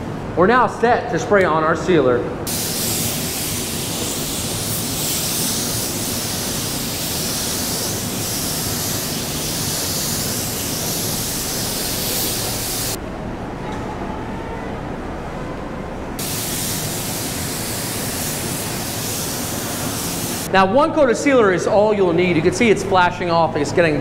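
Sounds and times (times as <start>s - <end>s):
spray gun hissing: 2.5s - 13.0s, 16.2s - 20.5s.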